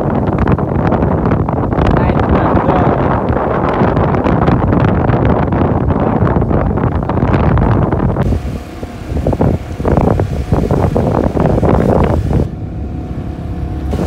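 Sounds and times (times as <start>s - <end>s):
wind rushing over microphone: 0.0s - 14.0s
motorcycle engine running: 8.2s - 14.0s.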